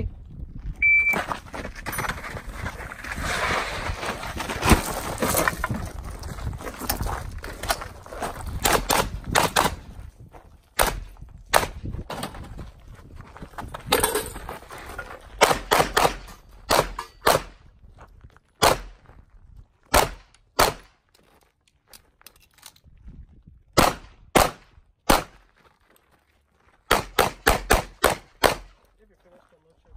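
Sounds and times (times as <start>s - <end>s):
pistol shots: 10.8s - 11.8s, 15.4s - 17.6s, 19.9s - 20.9s, 23.8s - 25.4s, 26.9s - 28.8s.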